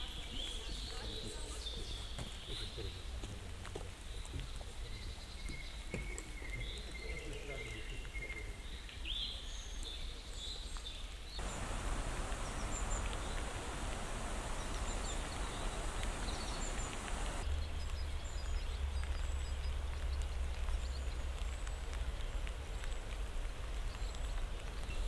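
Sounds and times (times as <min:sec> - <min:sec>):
songbird chirps: 0:00.0 - 0:25.0
rain hiss: 0:00.1 - 0:25.0.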